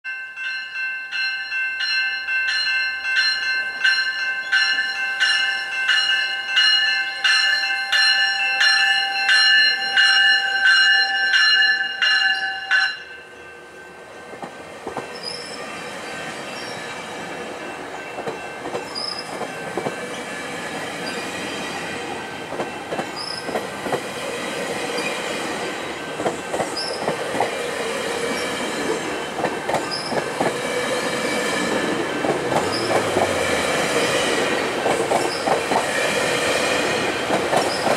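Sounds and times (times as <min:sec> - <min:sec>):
level-crossing warning bell: 0:00.0 - 0:37.9
train wheels clacking on rails: 0:14.3 - 0:37.9
high wheel squeals: 0:15.0 - 0:17.0, 0:18.8 - 0:19.4, 0:23.1 - 0:23.5, 0:32.6 - 0:33.2.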